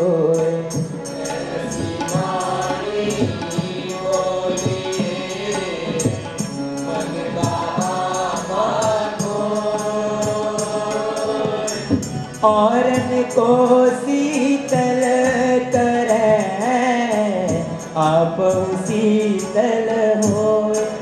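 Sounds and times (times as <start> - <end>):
light percussion beat: 0.0 - 21.0
person singing devotional song: 0.0 - 21.0.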